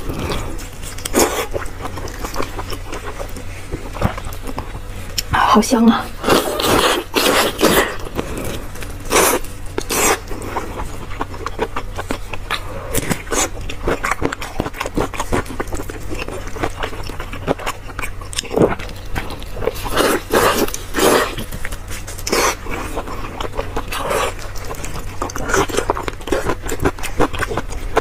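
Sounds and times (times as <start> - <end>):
wet sticky chewing: 0.0 - 5.4, 6.0 - 28.0
low hum: 0.0 - 28.0.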